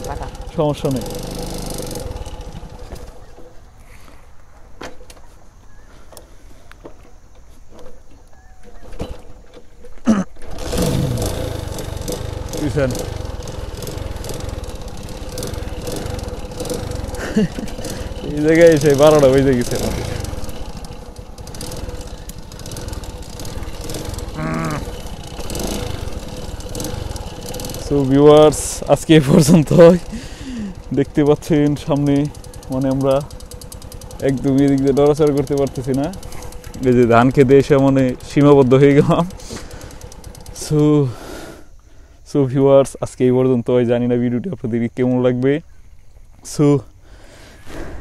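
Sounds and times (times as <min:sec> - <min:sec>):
motorcycle knocks and rattles: 0:00.0 - 0:03.6, 0:06.8 - 0:40.9
motorcycle engine at low revs: 0:00.0 - 0:41.6.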